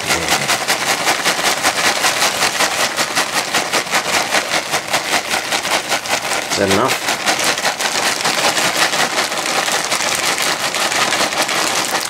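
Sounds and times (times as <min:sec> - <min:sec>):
eggs sizzling in frying pan: 0:09.4 - 0:12.0.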